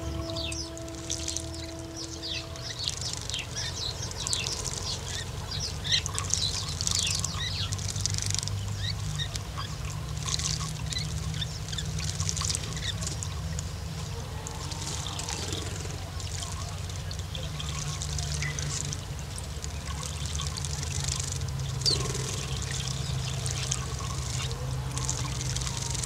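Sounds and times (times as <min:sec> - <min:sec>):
low rumble: 0:00.0 - 0:07.8
birds splashing in water: 0:00.0 - 0:26.0.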